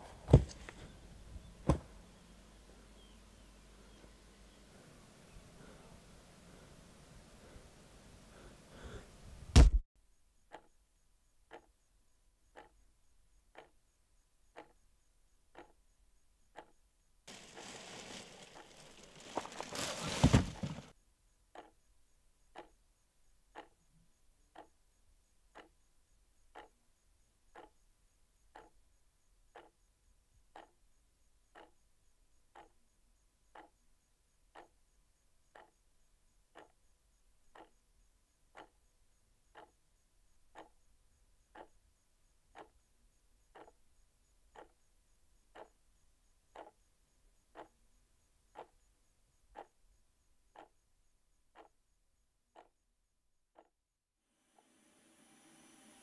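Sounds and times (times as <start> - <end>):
loud thud: 9.5 - 9.8
clock ticking: 10.4 - 10.8, 11.4 - 16.8, 21.5 - 21.9, 22.5 - 22.9, 23.5 - 24.9, 25.5 - 26.8, 27.5 - 28.8, 29.5 - 29.9, 30.5 - 30.8, 31.5 - 31.8, 32.5 - 32.8, 33.5 - 33.8, 34.5 - 34.8, 35.5 - 35.9, 36.5 - 37.9, 38.5 - 41.8, 42.5 - 45.8, 46.5 - 47.8, 48.5 - 48.9, 49.5 - 49.8, 50.5 - 50.9, 51.5 - 51.8, 52.5 - 52.8.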